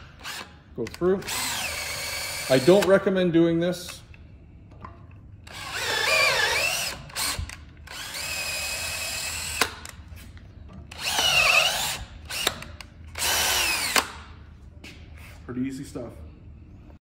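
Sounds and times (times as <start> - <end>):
electric drill whining: 1.3 - 2.9, 5.5 - 9.8, 10.9 - 12.6, 13.2 - 14.0.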